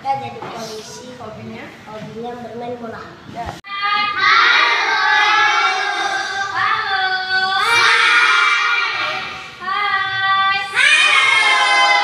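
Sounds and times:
children singing together: 3.7s - 12.0s.

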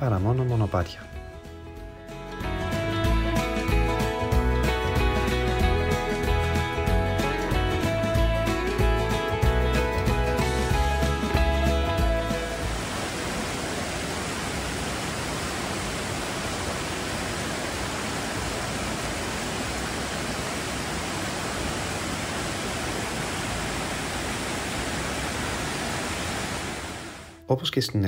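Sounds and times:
water flowing over rocks: 10.5s - 27.4s.

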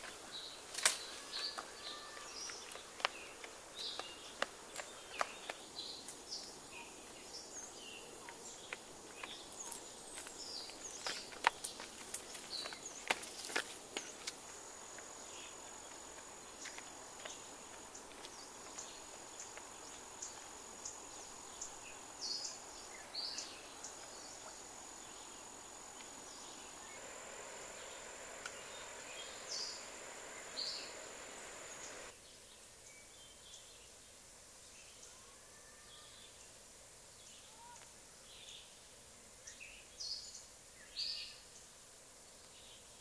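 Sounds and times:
high-pitched insect trill: 6.4s - 32.1s.

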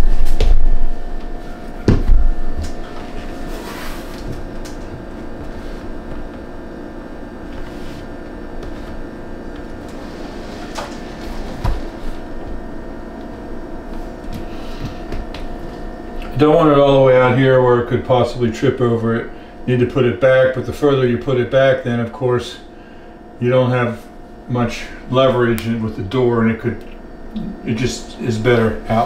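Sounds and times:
steady background hum: 0.0s - 29.0s.

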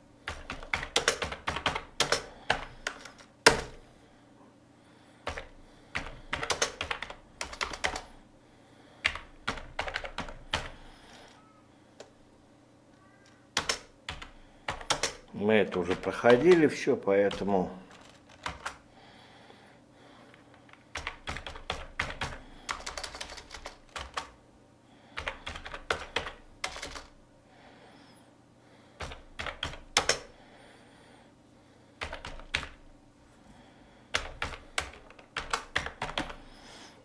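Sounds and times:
computer keyboard typing: 0.2s - 3.8s, 5.2s - 8.2s, 9.0s - 10.8s, 13.5s - 18.8s, 20.5s - 24.4s, 25.2s - 27.2s, 29.0s - 30.3s, 32.0s - 32.8s, 34.1s - 36.5s.

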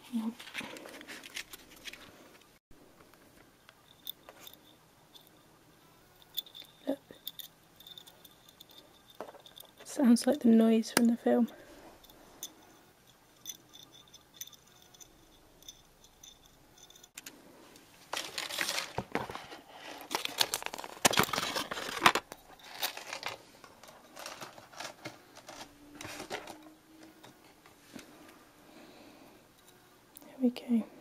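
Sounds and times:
plastic packaging crinkling: 18.0s - 26.5s.

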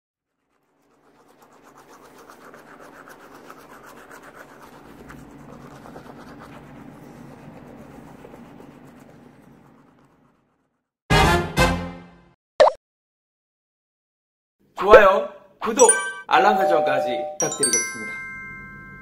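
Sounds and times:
toothbrush scrubbing teeth: 0.3s - 10.9s.

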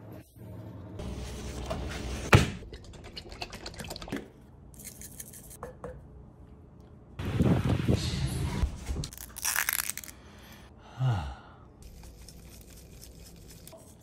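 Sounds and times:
seasoning shaken from shaker: 4.8s - 5.6s.

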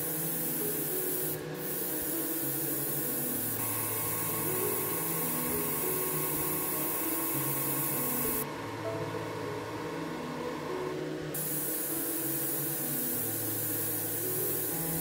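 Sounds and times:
airbrush spraying hiss: 0.0s - 8.4s, 11.4s - 15.0s
soft background music: 0.0s - 15.0s.

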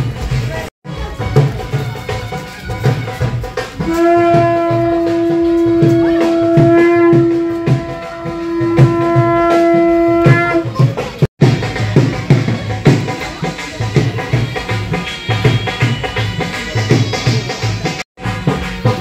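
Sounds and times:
steady drumbeat: 0.0s - 19.0s
horn holding long note: 3.8s - 10.8s.

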